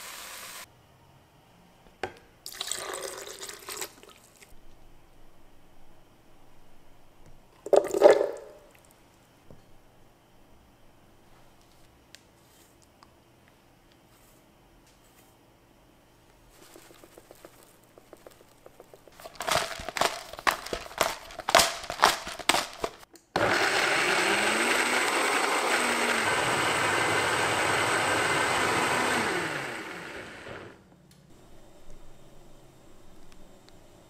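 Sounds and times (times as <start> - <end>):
blender knocking and clattering: 19.2 - 30.8
blender whirring: 19.2 - 30.8.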